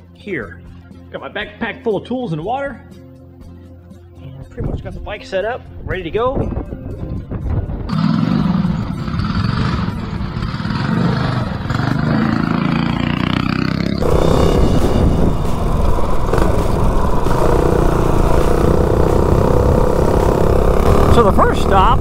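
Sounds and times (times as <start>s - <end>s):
mini bike engine running: 7.9s - 22.0s.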